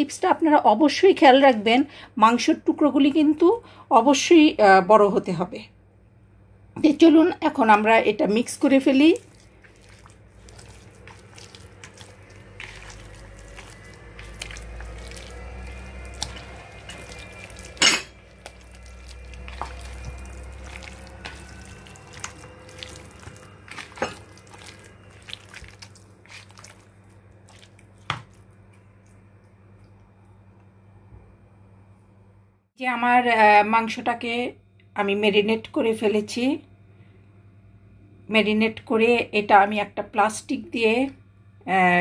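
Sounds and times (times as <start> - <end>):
hand squeezing wet meat: 8.5 - 30.4.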